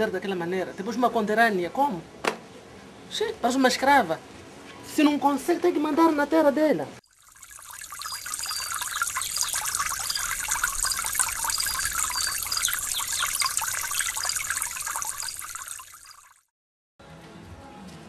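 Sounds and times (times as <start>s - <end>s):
trickling bubbling water: 7.0s - 16.5s
short high chirps: 7.5s - 16.3s.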